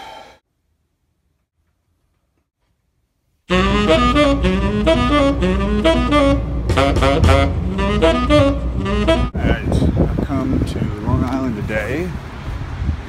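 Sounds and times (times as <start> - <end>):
saxophone melody: 3.5 - 9.5
steady drum pulse: 6.6 - 8.6.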